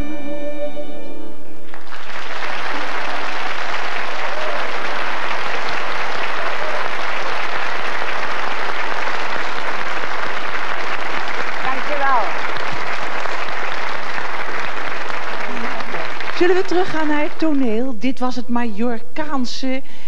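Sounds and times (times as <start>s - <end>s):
folk band with violin and pan flute: 0.0s - 1.6s
audience applause: 1.7s - 17.6s.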